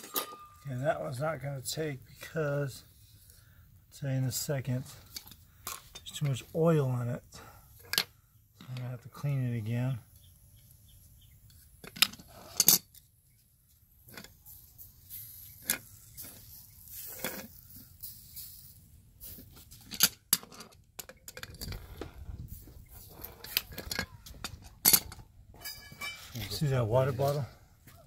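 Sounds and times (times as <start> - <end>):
metal clanking on brick pavers: 0.0 - 0.9, 19.4 - 27.5.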